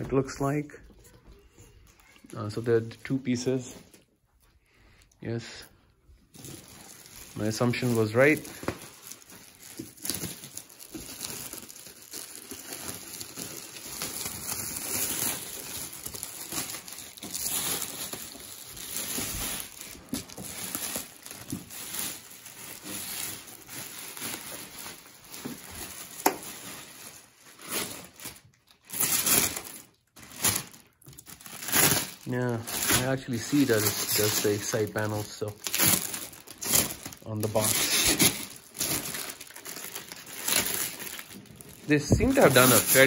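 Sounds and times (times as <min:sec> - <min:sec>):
packaging crinkling: 0:06.3 - 0:43.0.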